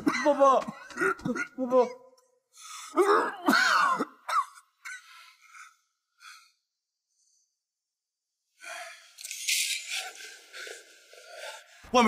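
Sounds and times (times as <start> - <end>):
faint breathing: 8.6 - 11.9.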